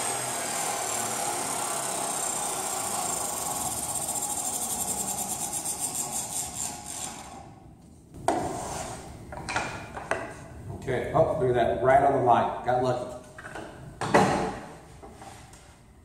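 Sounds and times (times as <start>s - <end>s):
table saw cutting plywood: 0.0s - 7.5s.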